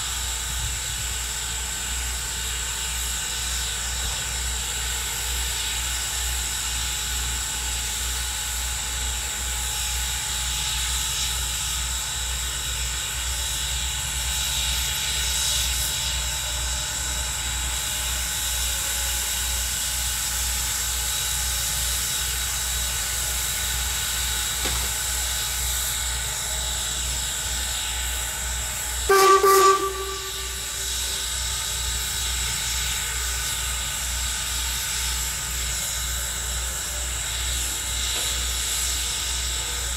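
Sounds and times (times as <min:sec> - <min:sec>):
steam hissing: 0:00.0 - 0:39.9
low regular pulsing: 0:25.4 - 0:32.9
steam whistle blast: 0:29.0 - 0:31.8.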